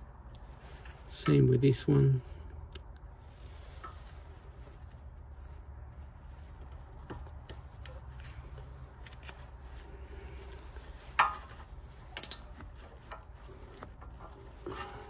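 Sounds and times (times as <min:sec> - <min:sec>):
small metallic clicks: 0:10.9 - 0:15.0.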